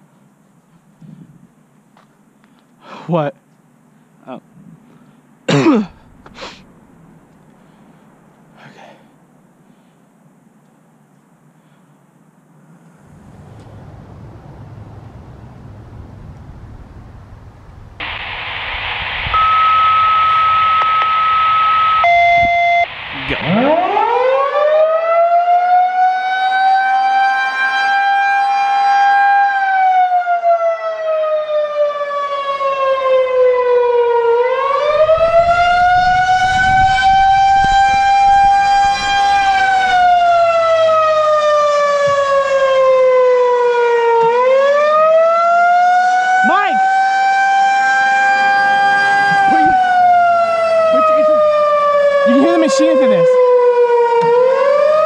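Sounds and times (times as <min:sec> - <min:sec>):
brief steady tones: 0:18.0 - 0:23.6
rotating siren wailing: 0:19.2 - 0:55.0.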